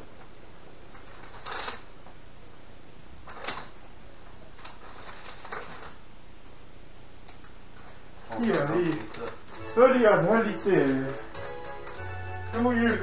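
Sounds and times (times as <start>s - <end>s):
low background hum: 0.0s - 13.0s
rustling of wrapped presents: 0.9s - 1.9s, 4.6s - 6.0s, 7.9s - 13.0s.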